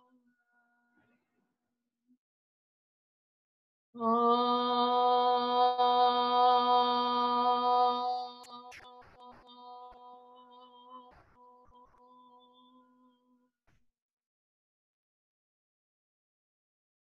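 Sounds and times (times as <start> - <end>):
woman singing long steady note: 4.0 - 12.7.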